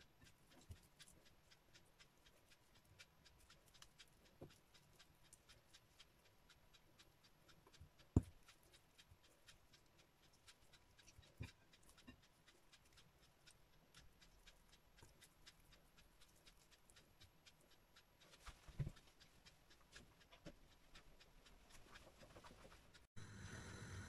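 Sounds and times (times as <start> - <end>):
steady low hum: 12.3 - 24.0.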